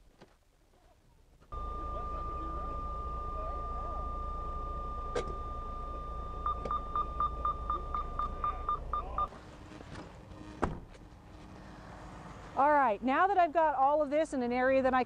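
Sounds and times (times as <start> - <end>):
diesel engine idling: 1.5 - 9.2
electronic warning tone: 1.5 - 9.3
fast beeping: 1.5 - 9.3.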